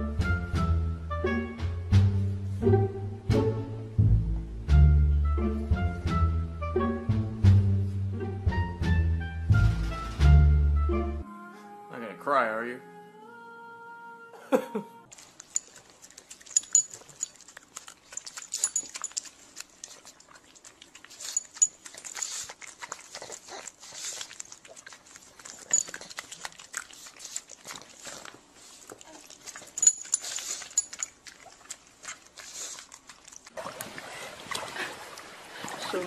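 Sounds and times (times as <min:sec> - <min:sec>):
dog snuffling and sniffing: 0:15.1 - 0:33.6.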